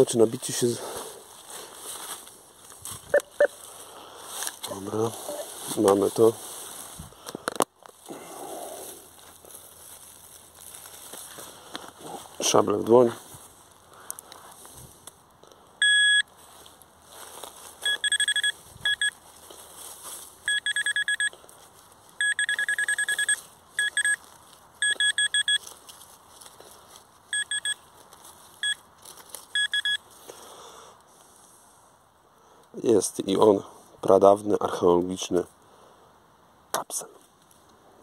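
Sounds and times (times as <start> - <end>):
rustling of soil and leaves: 0.0 - 36.1, 37.1 - 38.0
fast evenly spaced beeps: 15.8 - 16.2, 17.8 - 19.1, 20.5 - 21.3, 22.2 - 24.2, 24.8 - 25.6, 27.3 - 27.8, 29.5 - 30.0
pinpointer steady high tone: 15.8 - 16.3, 17.8 - 19.2, 22.2 - 24.2, 24.8 - 25.6.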